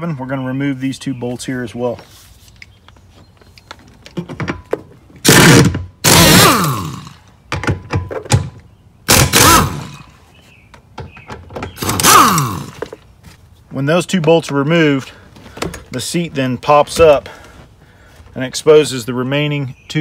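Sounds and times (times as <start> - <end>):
cordless power driver running: 5.2 - 7.2, 9.1 - 10.1, 11.8 - 12.9.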